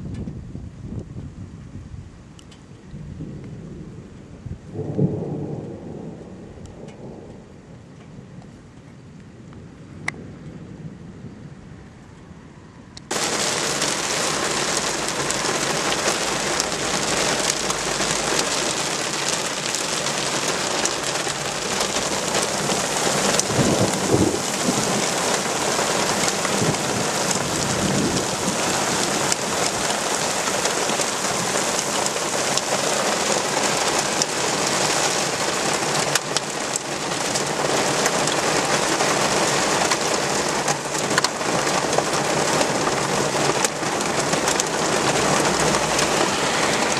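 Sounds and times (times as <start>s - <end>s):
thunder rumble: 0.0s - 46.9s
heavy rain pouring: 13.1s - 46.9s.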